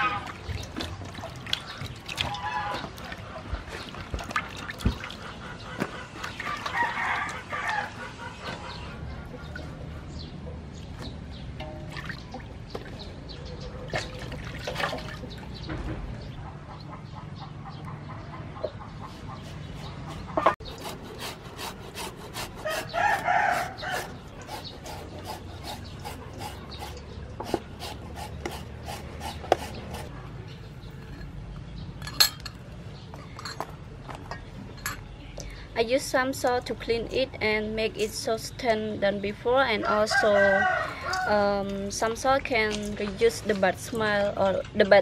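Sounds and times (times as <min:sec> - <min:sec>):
rooster crowing: 0:22.8 - 0:24.1, 0:39.8 - 0:41.4.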